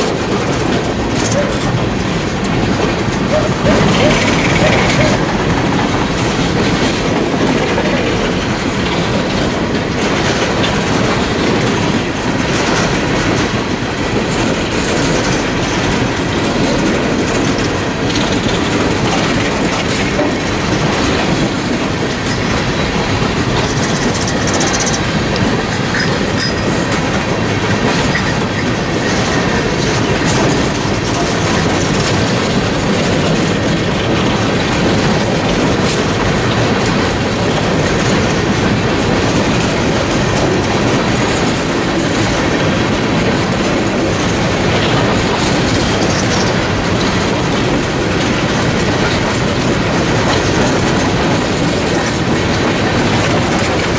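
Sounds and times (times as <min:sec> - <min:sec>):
clickety-clack over rail joints: 0:00.0 - 0:53.9
freight train wheels rumbling: 0:00.0 - 0:53.9
high wheel squeal: 0:25.8 - 0:26.8.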